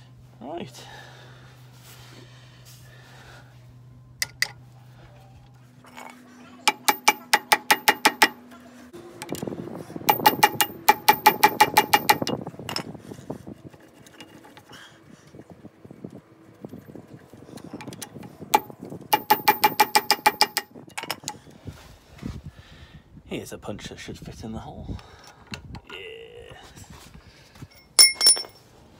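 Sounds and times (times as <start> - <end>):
metal tool tapping on metal: 4.2 - 4.6, 6.7 - 8.4, 10.1 - 12.9, 18.5 - 21.3, 27.7 - 28.6.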